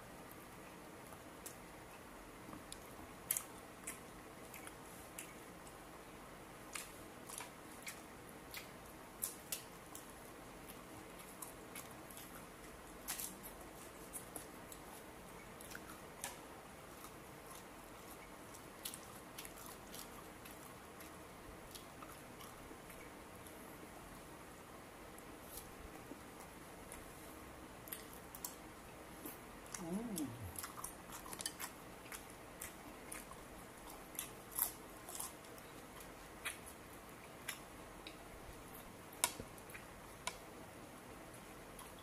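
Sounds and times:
crisp chewing crunches: 0:06.6 - 0:23.6, 0:27.8 - 0:40.4.

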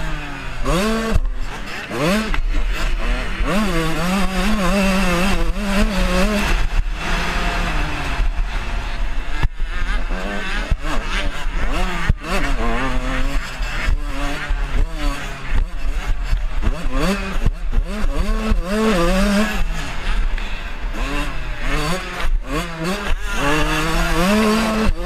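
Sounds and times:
motocross bike engine revving: 0:00.0 - 0:25.0.

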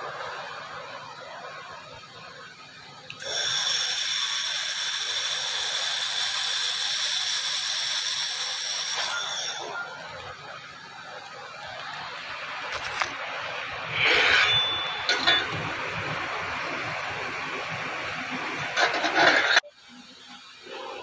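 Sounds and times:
laser welder hissing and whining: 0:03.0 - 0:15.5.

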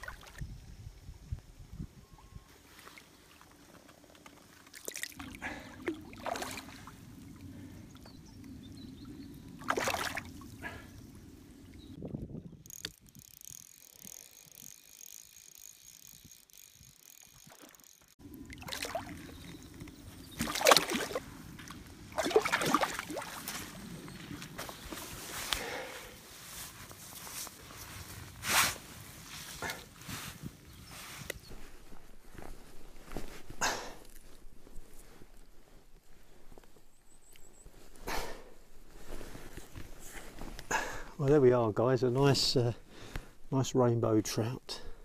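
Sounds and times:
water sloshing: 0:02.8 - 0:11.8, 0:17.2 - 0:25.1
fish thrashing and splashing: 0:04.4 - 0:07.5, 0:09.6 - 0:10.8, 0:12.8 - 0:23.9.

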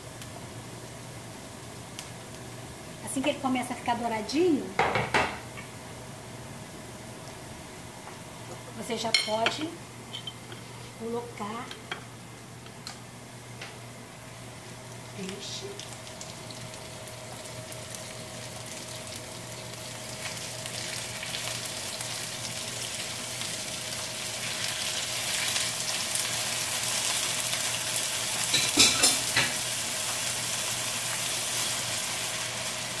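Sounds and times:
fish sizzling in a frying pan: 0:14.6 - 0:33.0.

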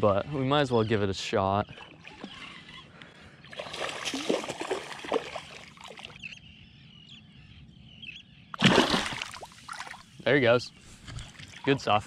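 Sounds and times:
faint bird calls: 0:00.2 - 0:08.6
fish splashing in water: 0:03.5 - 0:06.2, 0:08.6 - 0:10.1.

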